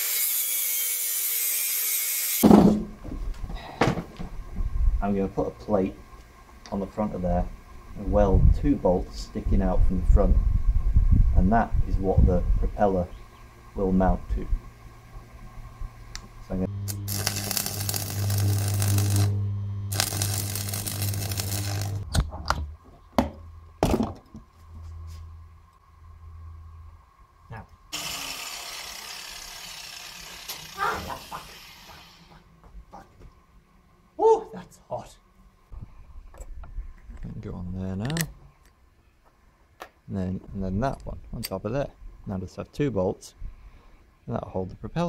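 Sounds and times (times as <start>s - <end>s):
angle grinder cutting metal: 0.0s - 2.4s, 16.8s - 22.0s, 27.9s - 32.3s
welding arc crackling and hissing: 0.0s - 2.4s, 16.4s - 22.1s, 27.9s - 32.4s
welder mains hum: 0.0s - 22.8s, 23.5s - 32.5s.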